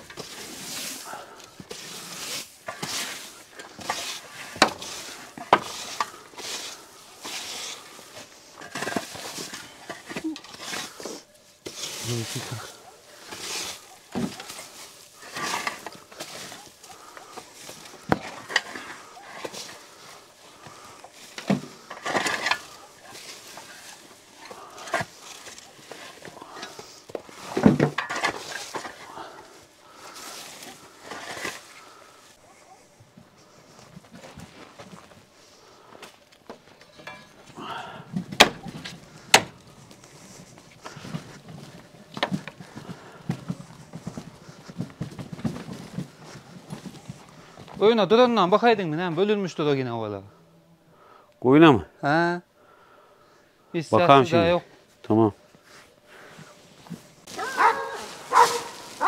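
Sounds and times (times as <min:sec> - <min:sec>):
hay rustling: 0:00.0 - 0:08.6, 0:10.5 - 0:32.8, 0:55.6 - 0:59.0
tools scraping dirt floor: 0:00.0 - 0:49.4, 0:55.5 - 0:59.0.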